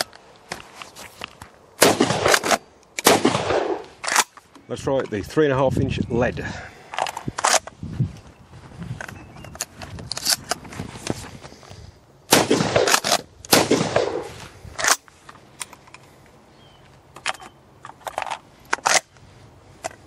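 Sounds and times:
shotgun shots: 1.8s - 4.2s, 12.3s - 15.0s
sharp crack: 1.8s - 4.4s, 12.3s - 15.1s
gun metallic clicks: 2.2s - 4.7s, 6.9s - 7.8s, 9.0s - 11.2s, 14.8s - 16.1s, 17.1s - 19.2s.

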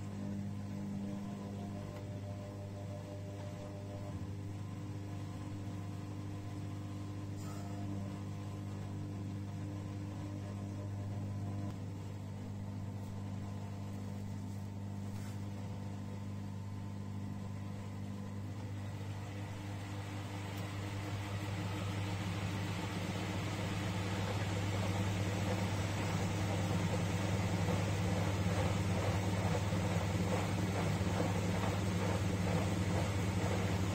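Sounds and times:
low motor hum: 0.0s - 33.9s
washing machine drum tumbling: 19.3s - 33.9s.

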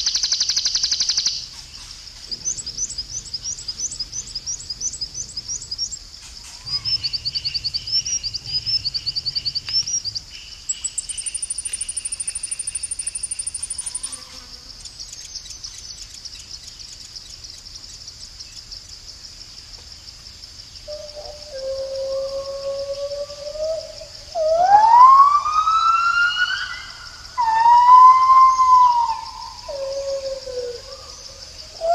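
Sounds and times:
high-pitched insect trill: 0.0s - 31.9s
rapid pulsing chirps: 2.3s - 16.3s.

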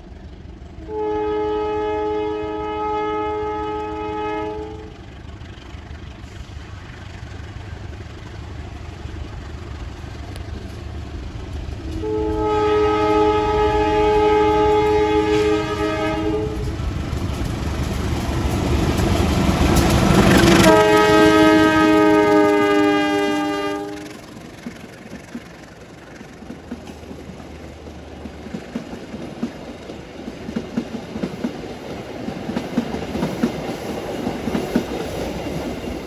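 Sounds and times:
train passing noise: 0.0s - 36.0s
locomotive air horn blasts: 0.8s - 5.0s, 11.9s - 16.8s, 20.3s - 24.2s
diesel engine rumbling: 3.9s - 31.2s.

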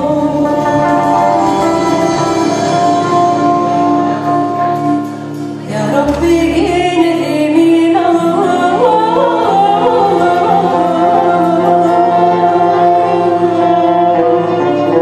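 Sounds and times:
sustained instrumental notes: 0.0s - 15.0s
person singing ornamented melody: 5.7s - 15.0s.

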